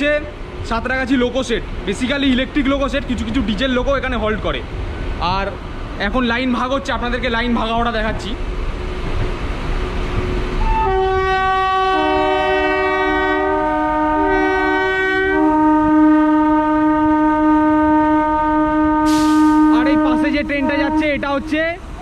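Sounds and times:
rumble of moving train: 0:00.0 - 0:22.0
train horn two-note blast: 0:10.6 - 0:21.6.

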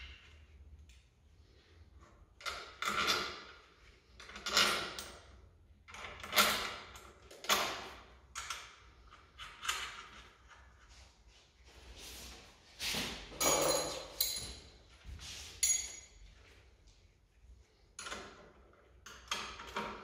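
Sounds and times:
tools scraping and knocking metal: 0:02.3 - 0:05.3, 0:13.2 - 0:16.2.

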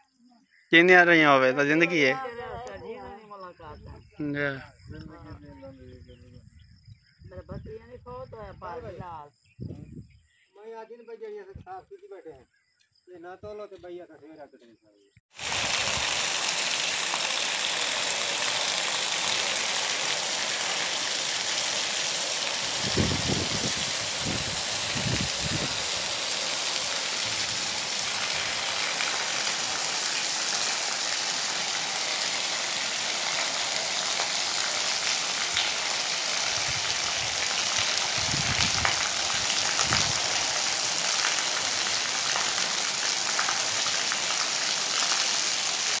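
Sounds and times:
heavy rain on puddles: 0:15.3 - 0:46.0.

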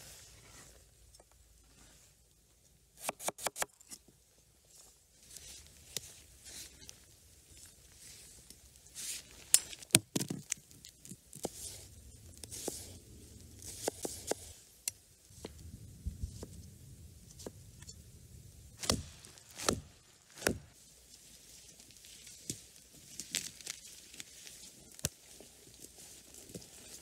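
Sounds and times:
soft rustling: 0:19.0 - 0:27.0.

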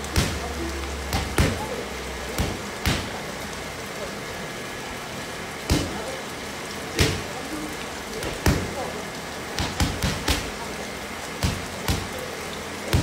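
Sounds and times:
boxing gloves smacking focus mitts: 0:11.4 - 0:12.1.

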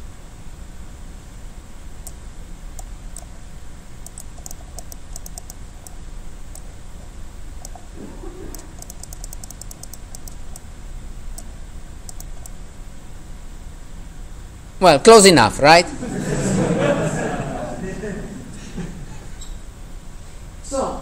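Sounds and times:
low room rumble: 0:00.0 - 0:21.0
computer mouse clicks: 0:02.8 - 0:03.3, 0:04.0 - 0:06.8, 0:07.6 - 0:07.9, 0:08.5 - 0:10.7, 0:11.4 - 0:12.6.

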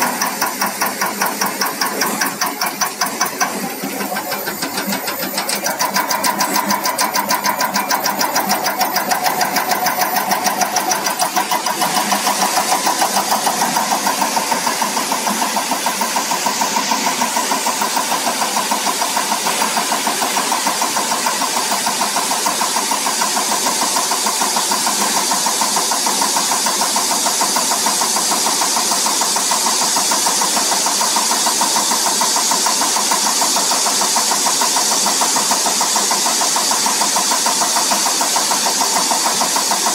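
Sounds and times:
fast even ticking pulses: 0:00.0 - 0:17.7
hiss: 0:00.0 - 0:39.9
mechanical running sound: 0:00.0 - 0:39.9.

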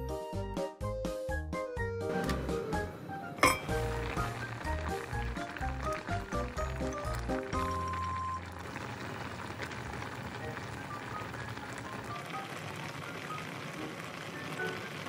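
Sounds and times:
light background music: 0:00.0 - 0:08.5
liquid simmering and bubbling: 0:03.5 - 0:15.0.

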